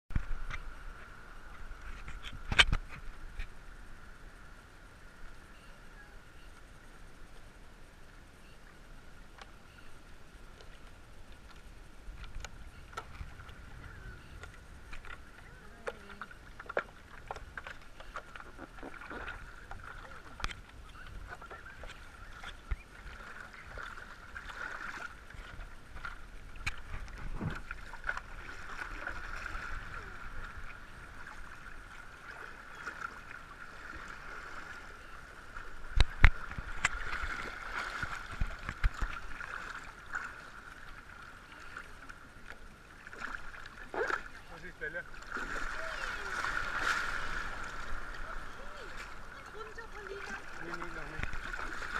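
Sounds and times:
faint steady hum: 0:00.1 - 0:51.9
water lapping against paddleboard: 0:08.4 - 0:51.9.

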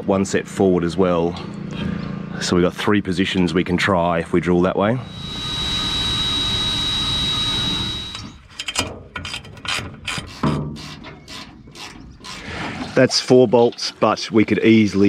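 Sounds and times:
power drill whining: 0:05.0 - 0:08.5.

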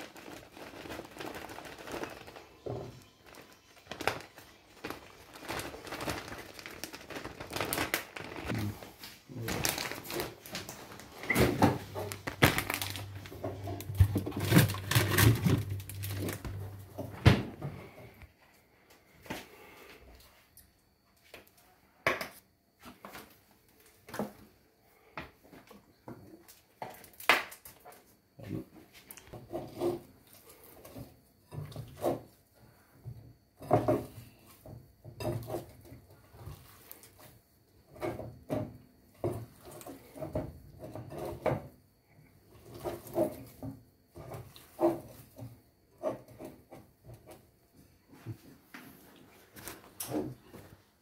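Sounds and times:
hands kneading dough: 0:00.0 - 0:11.2.

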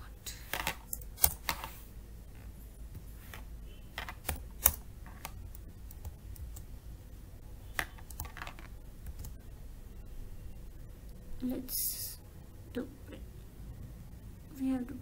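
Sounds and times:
keyboard typing: 0:00.5 - 0:01.8, 0:03.3 - 0:06.7, 0:07.7 - 0:09.4.

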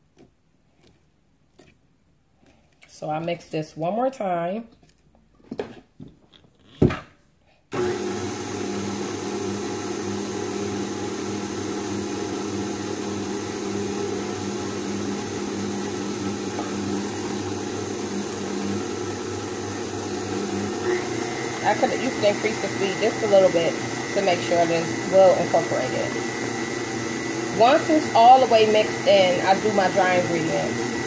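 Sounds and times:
stand mixer running: 0:07.7 - 0:31.0.

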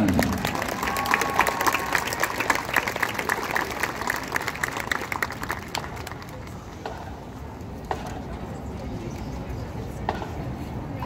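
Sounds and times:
audience applauding: 0:00.0 - 0:06.5
crowd voices: 0:00.0 - 0:11.0.

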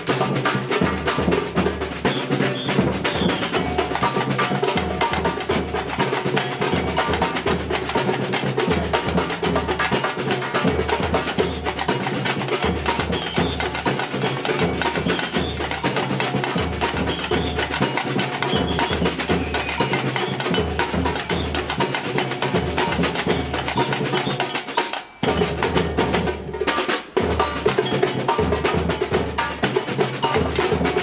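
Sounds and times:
hand percussion: 0:00.0 - 0:31.0
snare drum patterns: 0:00.0 - 0:31.0
surdo bass drums pulsing: 0:00.8 - 0:24.3.

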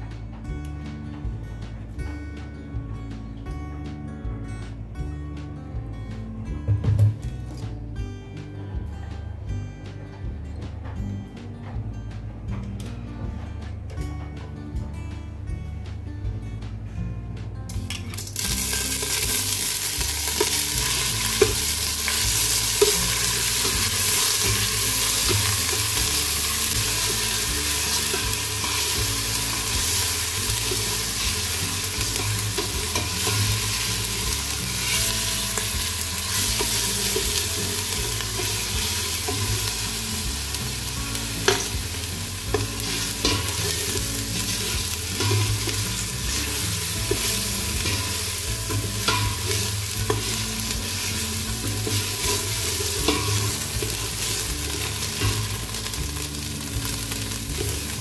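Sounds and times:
paste sizzling in hot oil: 0:18.2 - 0:58.0.

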